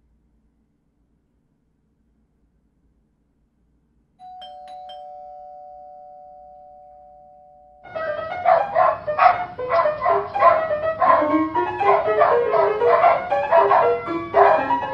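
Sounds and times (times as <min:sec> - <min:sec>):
two-note doorbell chime: 0:04.2 - 0:08.6
dogs barking and yipping: 0:07.9 - 0:14.9.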